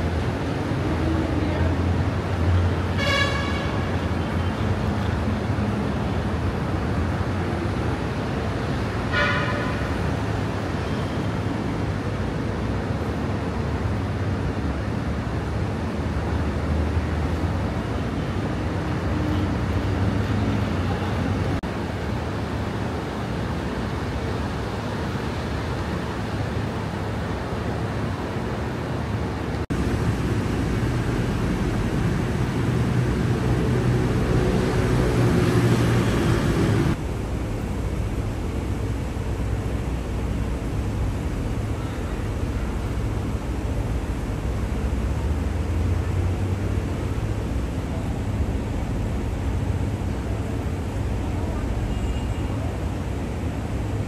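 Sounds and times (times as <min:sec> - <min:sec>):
road traffic rumble: 0:00.0 - 0:54.0
car horn toot: 0:03.0 - 0:03.9, 0:09.1 - 0:09.9.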